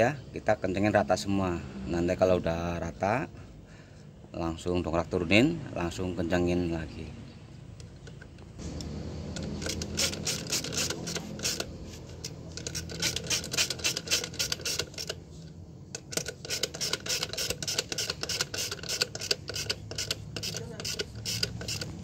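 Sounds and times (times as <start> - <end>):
ratchet wrench clicking: 9.4 - 15.2, 16.0 - 22.0.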